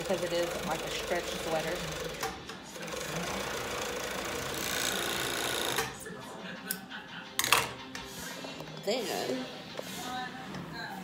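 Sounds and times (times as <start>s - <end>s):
overlock sewing machine running: 0.0s - 5.9s.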